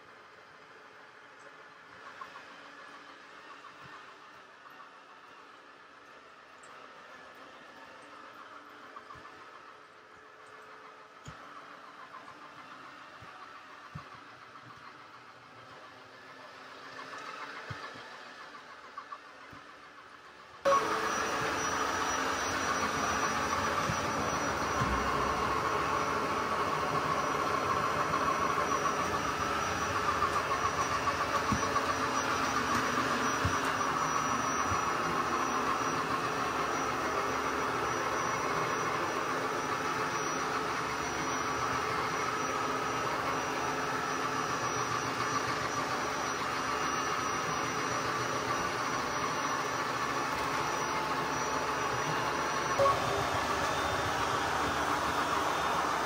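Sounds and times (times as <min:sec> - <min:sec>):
robot vacuum whirring hum: 0:06.6 - 0:56.0
thin high whine: 0:20.7 - 0:56.0.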